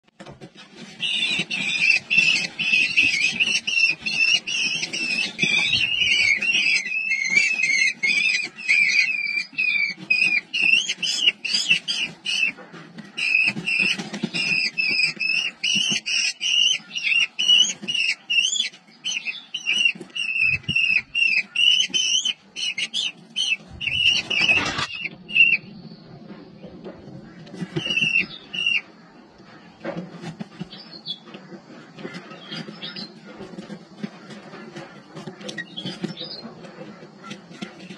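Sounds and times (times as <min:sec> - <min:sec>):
nestlings begging calls: 0:00.8 - 0:25.7.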